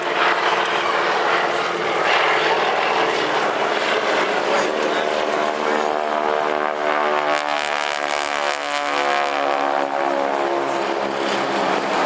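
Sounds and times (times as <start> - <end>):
biplane radial engines droning past: 0.0 - 12.0.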